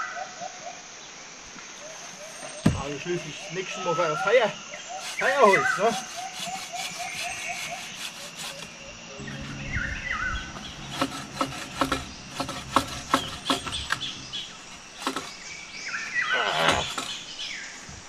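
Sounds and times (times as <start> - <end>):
bird chirping: 1.8 - 18.0
bow saw rasping strokes: 2.3 - 17.7.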